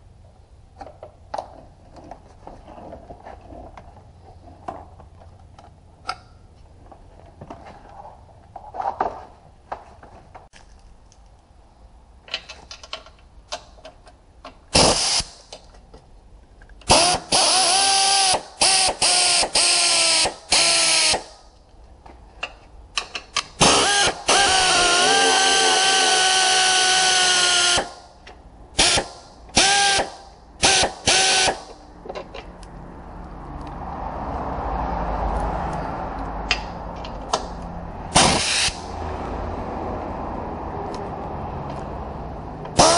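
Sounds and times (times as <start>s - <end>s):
pneumatic wrench whining: 14.7s - 15.5s, 16.8s - 21.4s, 23.6s - 28.1s, 28.8s - 31.8s, 38.1s - 38.9s.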